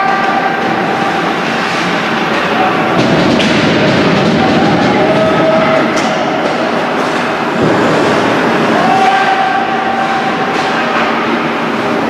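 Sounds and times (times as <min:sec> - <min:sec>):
ice hockey play and spectators: 0:00.0 - 0:12.0.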